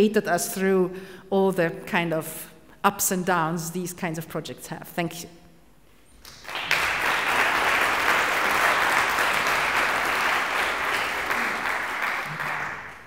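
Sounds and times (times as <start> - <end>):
audience applauding: 6.2 - 13.0.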